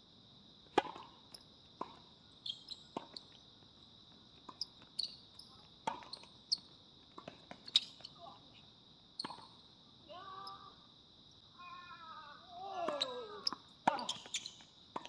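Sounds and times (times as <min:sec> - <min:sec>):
high insect drone: 0:00.1 - 0:15.0
tennis ball struck by rackets: 0:00.7 - 0:01.1
ball bouncing on hard court: 0:12.8 - 0:15.0.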